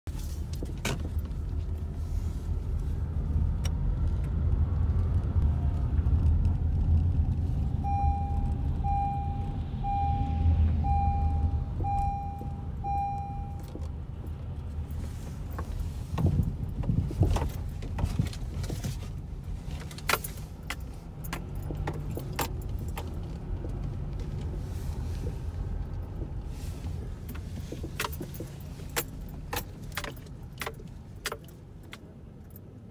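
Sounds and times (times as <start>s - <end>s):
car engine and road rumble: 0.1s - 32.9s
electronic chime beeping: 7.8s - 13.6s.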